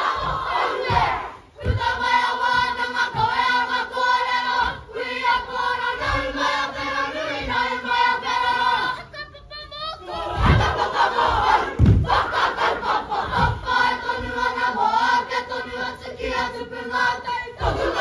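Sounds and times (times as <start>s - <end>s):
dull low thuds: 0.0s - 3.8s, 10.3s - 12.4s, 13.0s - 14.5s
group singing in unison: 0.0s - 9.1s, 10.0s - 18.0s.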